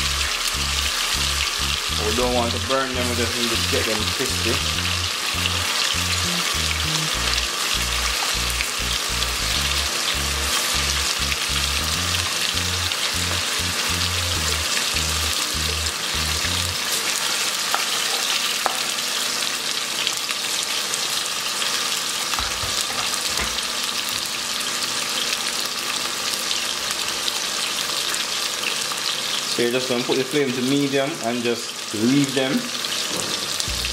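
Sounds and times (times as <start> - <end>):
low rhythmic thumping: 0.0 - 16.8
chicken deep-frying in oil: 0.0 - 33.9.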